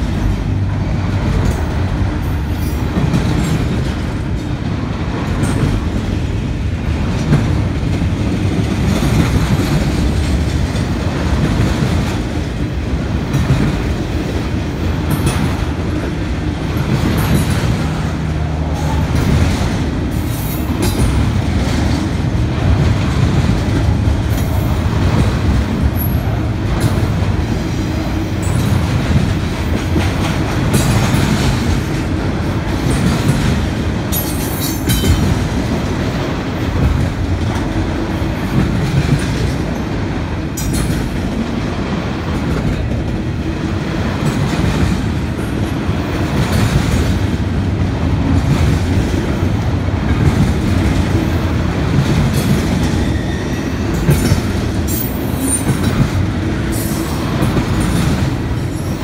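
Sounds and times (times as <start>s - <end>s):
freight train rumbling and rattling: 0.0s - 59.0s
wheels clacking over rail joints: 0.0s - 59.0s
high wheel squeal: 53.0s - 53.8s.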